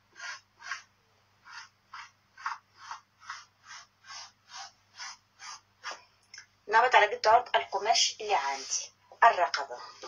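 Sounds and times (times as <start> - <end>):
chalk scratching on fabric: 0.1 - 6.0, 8.3 - 8.9.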